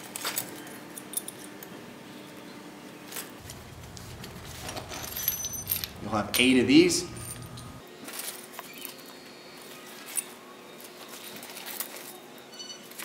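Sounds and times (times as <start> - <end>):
metal bolts clicking: 3.4 - 7.8.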